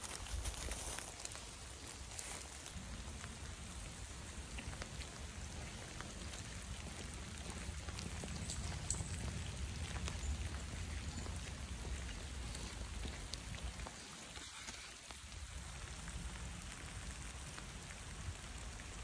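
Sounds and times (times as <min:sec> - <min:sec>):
light rain falling: 0:00.0 - 0:19.0.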